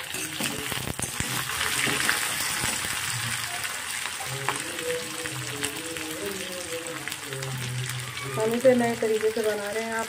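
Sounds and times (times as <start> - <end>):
onions sizzling in hot oil: 0.0 - 10.0.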